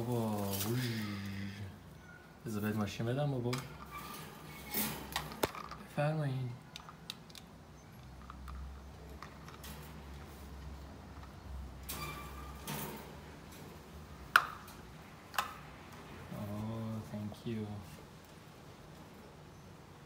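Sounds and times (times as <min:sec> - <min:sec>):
bird scraping on cage bars: 0:03.7 - 0:05.4, 0:11.7 - 0:14.0.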